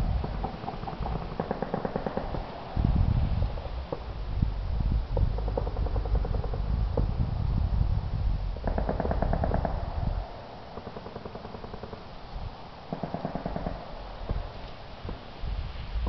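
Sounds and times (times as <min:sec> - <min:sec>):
distant machine-gun fire: 0:00.2 - 0:02.8, 0:08.6 - 0:12.0, 0:12.9 - 0:14.6.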